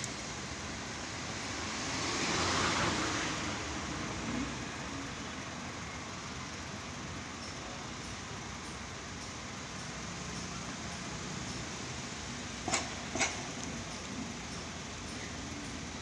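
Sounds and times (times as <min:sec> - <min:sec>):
street traffic hum: 0:00.0 - 0:16.0.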